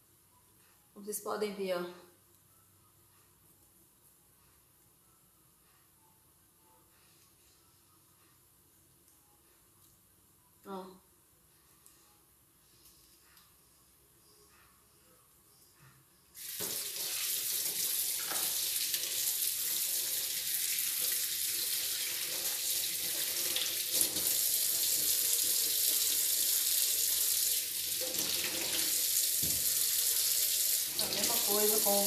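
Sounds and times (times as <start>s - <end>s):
water running into metal sink: 16.4s - 32.0s
hands rinsing vegetable: 30.6s - 32.0s.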